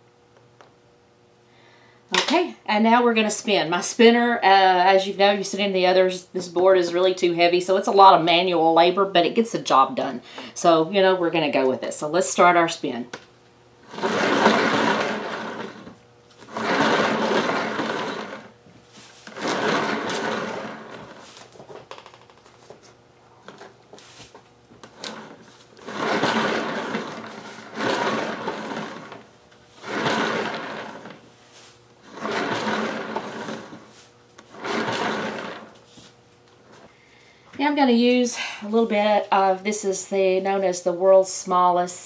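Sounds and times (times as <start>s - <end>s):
spinner whirring: 13.8s - 21.8s, 24.8s - 35.8s.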